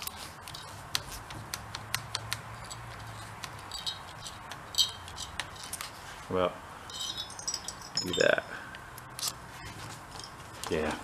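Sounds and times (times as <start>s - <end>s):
throttle grip clicks and rubbing: 0.0s - 6.0s, 9.0s - 9.4s
low steady hum: 0.0s - 11.0s.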